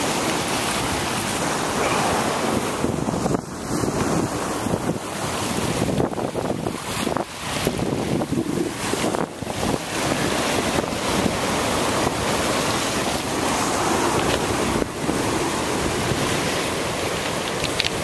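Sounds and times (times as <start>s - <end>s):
surf washing over rocks: 0.0s - 18.0s
wind on microphone: 0.0s - 18.0s.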